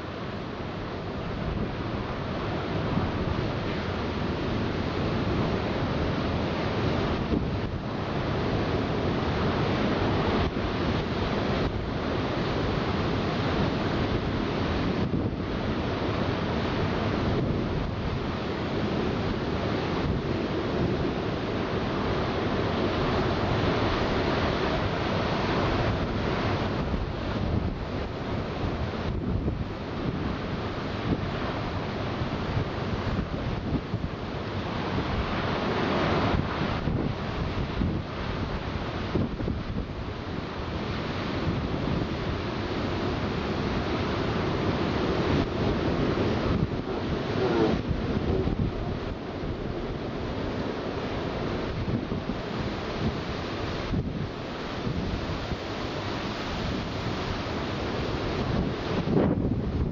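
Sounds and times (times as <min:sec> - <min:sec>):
heavy waves breaking: 0:00.0 - 0:59.9
wind buffeting microphone: 0:00.4 - 0:59.9.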